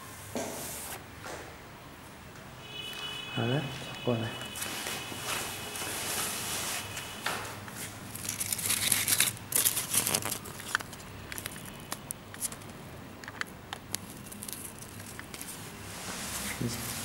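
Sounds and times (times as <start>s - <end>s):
fabric rustling: 4.5s - 7.1s.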